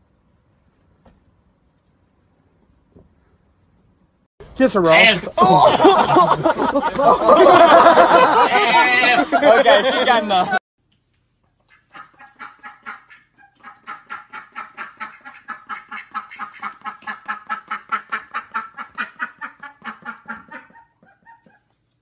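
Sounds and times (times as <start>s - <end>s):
duck quacking: 11.6s - 21.7s.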